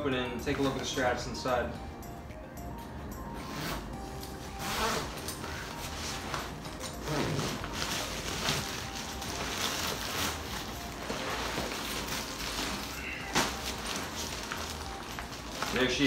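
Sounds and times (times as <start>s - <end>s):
zipper pulled open: 3.4s - 8.8s
nylon fabric rustling: 3.4s - 16.0s.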